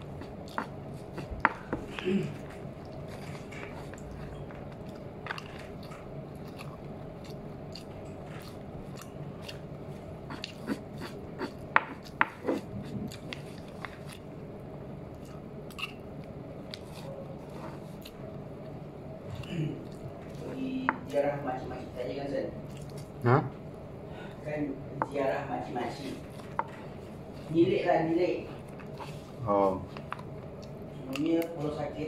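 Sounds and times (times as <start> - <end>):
man chewing noodles: 0.0 - 20.4, 22.6 - 23.8, 28.6 - 31.0
background hum: 0.0 - 32.0
fork clicking and scraping: 10.3 - 14.2.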